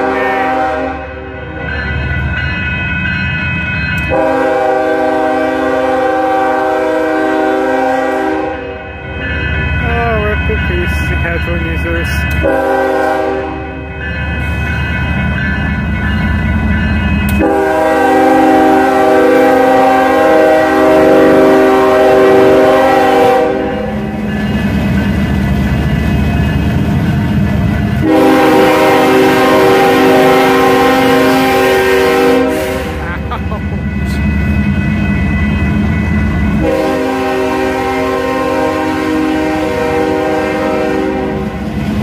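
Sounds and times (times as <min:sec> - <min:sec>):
locomotive air horn blasts: 0:00.0 - 0:01.2, 0:04.1 - 0:08.8, 0:12.4 - 0:13.7, 0:17.4 - 0:23.9, 0:28.0 - 0:33.1, 0:36.6 - 0:41.6
train rumbling: 0:00.0 - 0:42.0.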